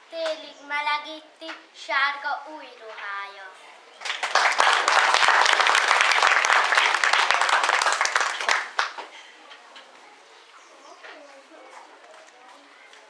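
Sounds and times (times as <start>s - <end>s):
audience clapping: 4.0s - 9.1s.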